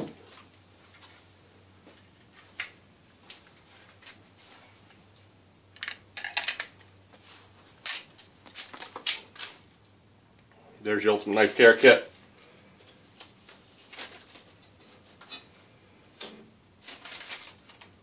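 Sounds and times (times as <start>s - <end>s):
plastic packaging crinkling: 16.8s - 18.0s.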